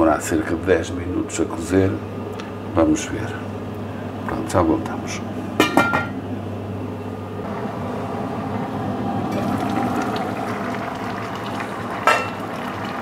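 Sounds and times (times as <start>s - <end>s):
pot bubbling: 7.4s - 13.0s.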